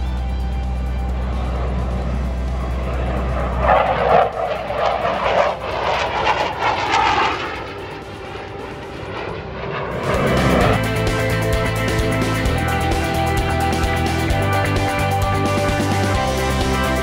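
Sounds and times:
fighter jet engine roar: 0.0 - 17.0.

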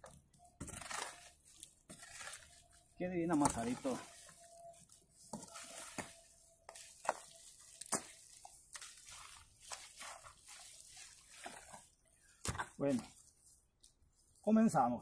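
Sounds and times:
bare feet squelching in mud: 5.4 - 14.4
hoe chopping wet mud: 7.8 - 10.7.

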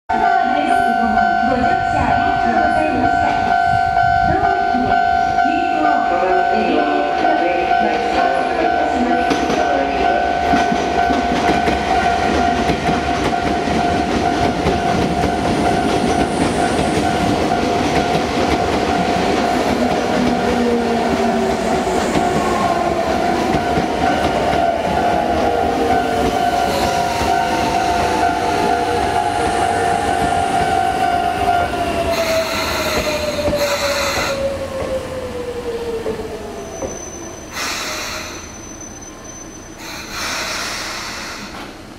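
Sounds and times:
train wheels rumbling: 0.1 - 41.9
short bursts of air hiss: 37.6 - 38.5, 39.8 - 41.8.

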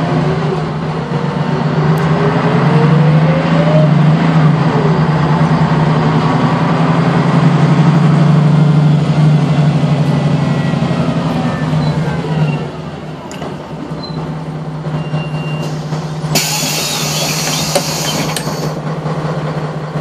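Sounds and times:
bus engine humming: 0.0 - 20.0.

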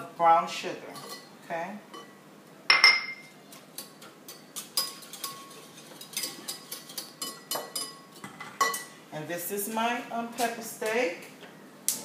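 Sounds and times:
metal spoon clinking glass bowl: 2.7 - 8.9.

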